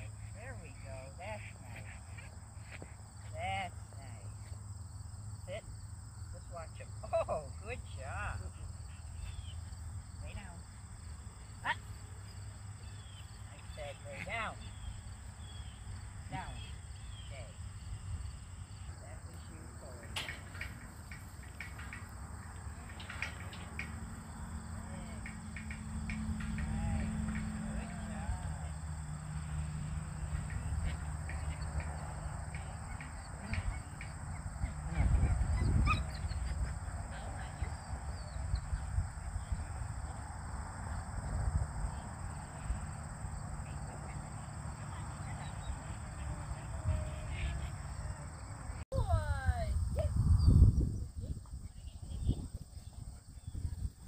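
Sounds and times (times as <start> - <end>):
crickets trilling: 0.0 - 54.0
insects droning: 0.0 - 54.0
wind rumble on microphone: 30.2 - 42.9, 45.6 - 54.0.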